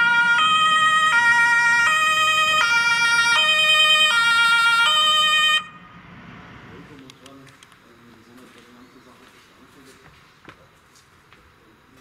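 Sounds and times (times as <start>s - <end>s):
two-tone emergency siren: 0.0s - 6.0s.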